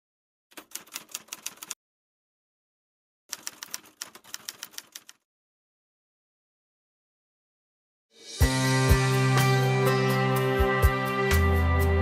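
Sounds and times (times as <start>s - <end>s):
typewriter keys clattering: 0.5s - 1.8s, 3.3s - 5.2s.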